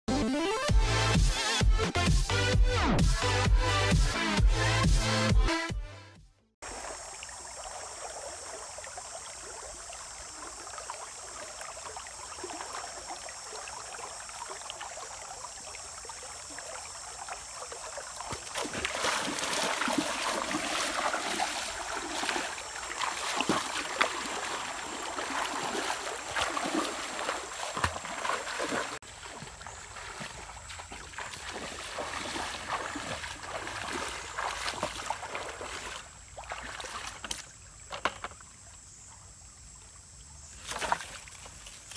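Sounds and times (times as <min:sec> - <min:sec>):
outdoor ambience: 0:06.2 - 0:41.9
water sloshing and splashing: 0:06.6 - 0:38.7, 0:40.6 - 0:41.9.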